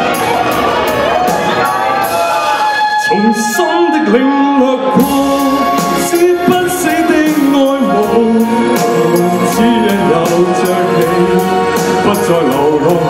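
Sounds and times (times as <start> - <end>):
pop backing track with drum beat: 0.0 - 13.0
man singing into microphone: 2.9 - 13.0.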